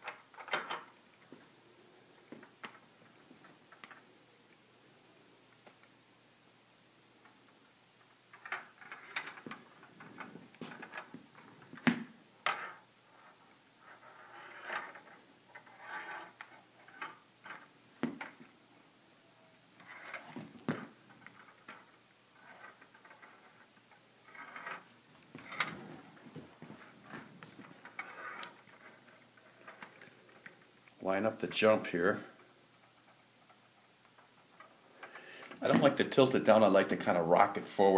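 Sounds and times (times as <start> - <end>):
steel ball rolling in plastic maze: 8.3 - 18.4, 19.8 - 30.7.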